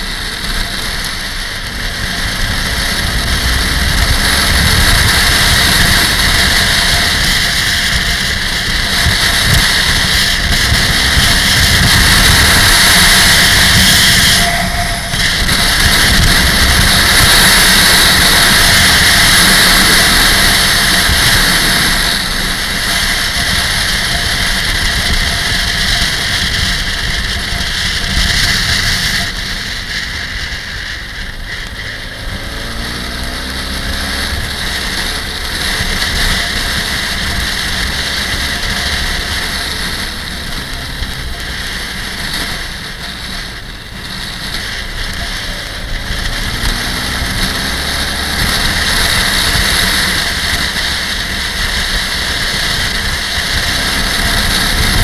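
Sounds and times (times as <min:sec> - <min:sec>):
motorcycle engine: 0:00.0 - 0:55.0
wind noise on microphone: 0:00.0 - 0:55.0.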